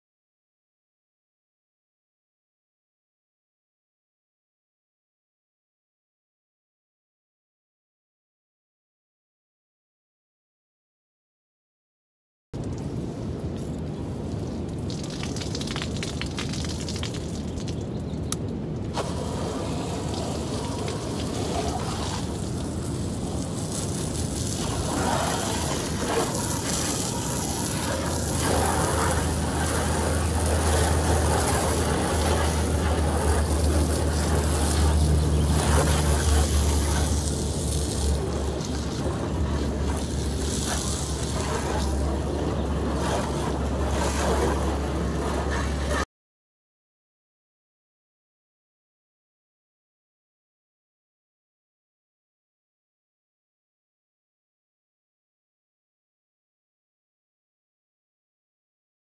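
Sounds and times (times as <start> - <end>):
water spraying from hose: 12.6 - 18.0, 18.9 - 46.0
steady low hum: 17.9 - 46.0.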